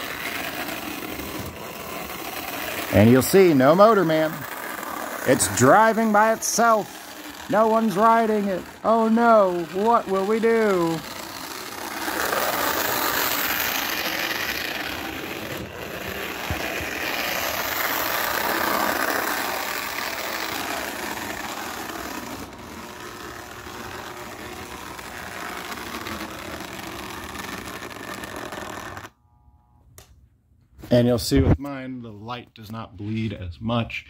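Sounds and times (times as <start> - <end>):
toy train wheels rattling on track: 0.0 - 29.1
small electric motor whirring: 0.0 - 29.8.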